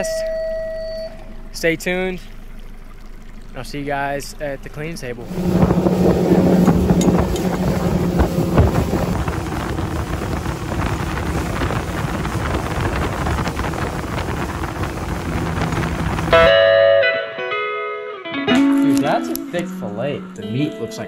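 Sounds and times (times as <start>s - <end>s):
rushing water: 0.0s - 16.6s
outboard motor running: 0.0s - 16.7s
wind rush on microphone: 5.2s - 16.5s.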